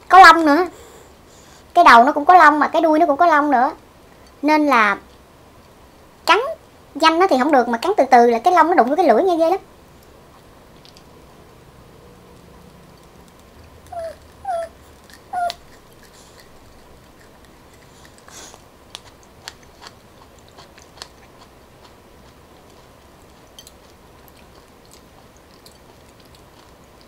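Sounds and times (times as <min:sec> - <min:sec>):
mouth clicks and smacks chewing: 0:12.4 - 0:27.0.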